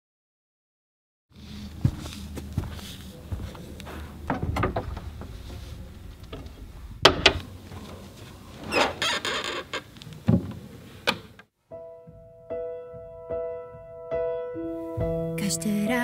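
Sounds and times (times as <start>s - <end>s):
high-heeled footsteps on hard floor: 1.8s - 4.0s
piano lid creaking open: 3.8s - 11.5s.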